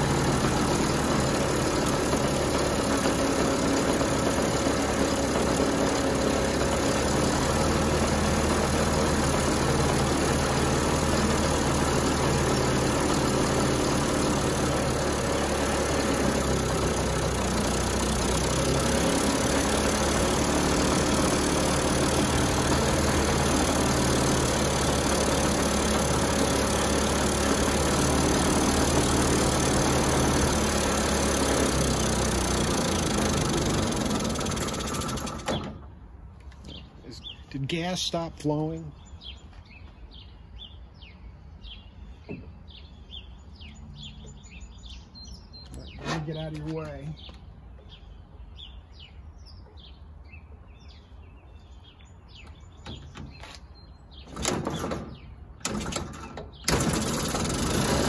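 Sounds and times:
moped engine idling: 0.0s - 35.6s.

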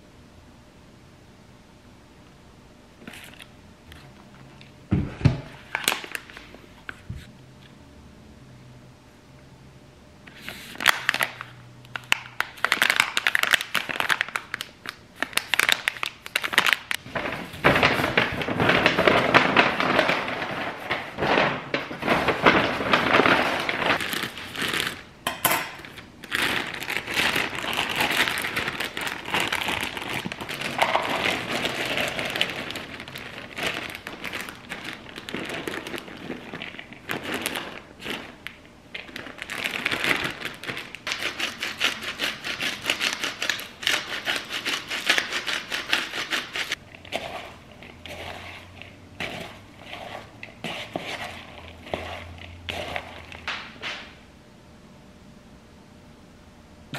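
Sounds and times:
packaging rustling and crinkling: 10.6s - 25.1s, 25.8s - 50.1s.

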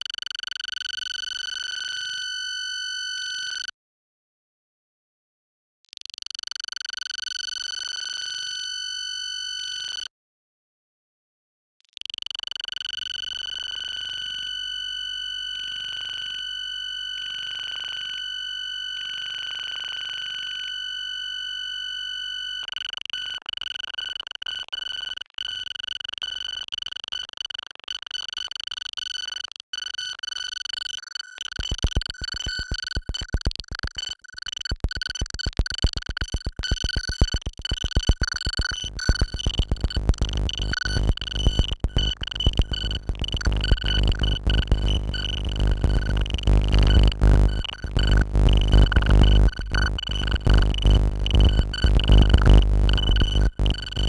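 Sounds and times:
fast low buzzing pulse: 36.2s - 54.0s
steady high synthesized tones: 37.7s - 54.0s
grainy electronic layer: 37.8s - 54.0s.

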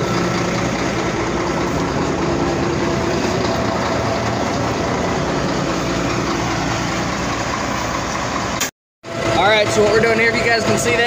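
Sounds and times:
forklift engine running: 0.0s - 11.0s.

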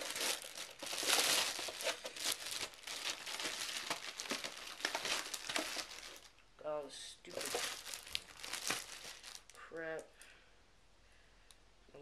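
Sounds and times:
plastic bag crinkling: 0.0s - 6.4s, 7.3s - 9.7s.

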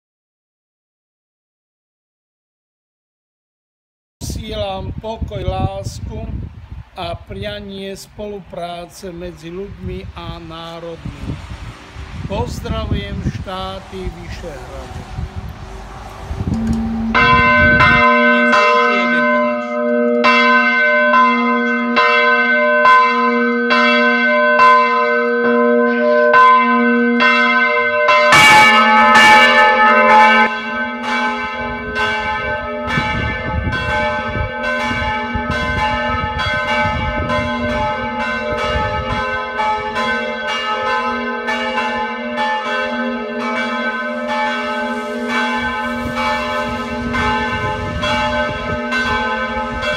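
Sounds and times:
church bells ringing: 12.9s - 49.9s
sustained hum: 15.2s - 17.8s.

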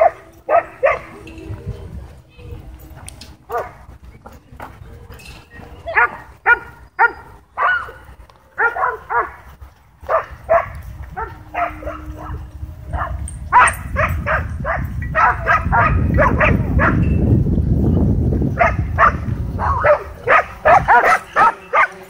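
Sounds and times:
dogs barking: 0.0s - 1.3s, 3.4s - 4.0s, 5.1s - 17.1s, 18.5s - 22.0s
low rumbling noise: 9.9s - 20.9s.

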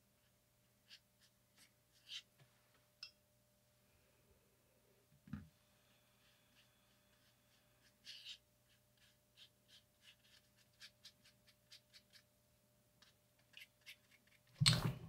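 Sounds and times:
faint steady hum: 0.0s - 15.0s
brush dabbing on paper: 0.2s - 2.3s, 5.7s - 12.3s, 13.0s - 15.0s.

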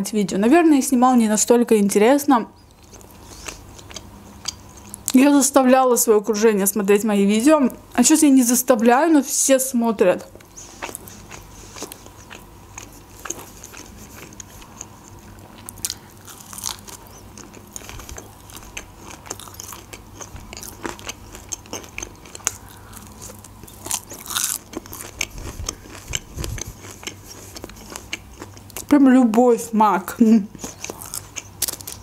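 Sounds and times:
crunching bites and chewing: 2.7s - 5.1s, 10.4s - 28.9s, 30.6s - 32.0s.

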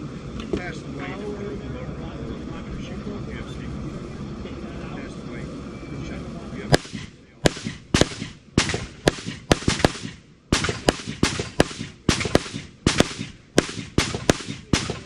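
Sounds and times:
semi-automatic gunfire: 6.7s - 15.0s.

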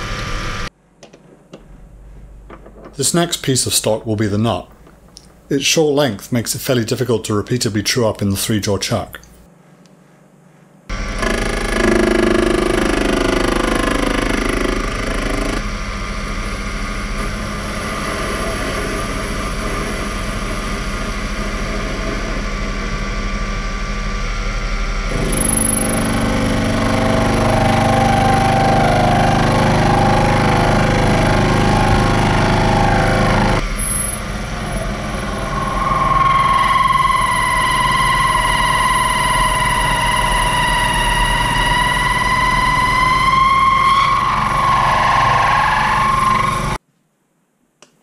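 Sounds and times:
mini lathe running: 10.9s - 15.6s, 25.1s - 44.7s.

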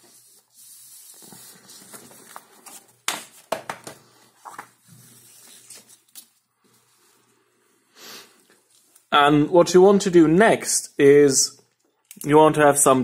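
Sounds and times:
paper rustling: 0.0s - 7.2s
paper crinkles and taps: 1.2s - 6.4s.

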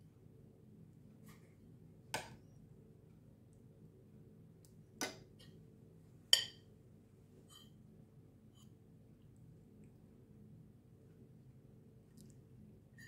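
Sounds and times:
metal spoon clinking on ceramic dishes: 6.4s - 6.6s.

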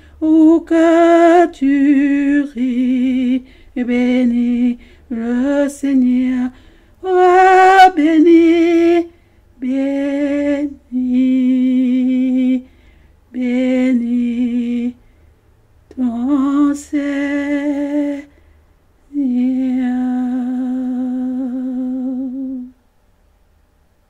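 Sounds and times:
breaths: 0.0s - 0.2s, 3.4s - 3.8s, 4.8s - 5.1s, 6.5s - 7.0s, 9.1s - 9.5s, 12.6s - 13.3s, 15.0s - 15.4s, 18.3s - 18.8s.

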